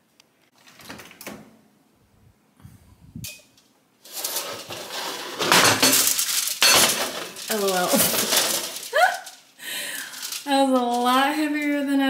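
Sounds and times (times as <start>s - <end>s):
metal pan scraping: 4.0s - 8.9s
aluminium foil crinkling: 4.0s - 12.0s.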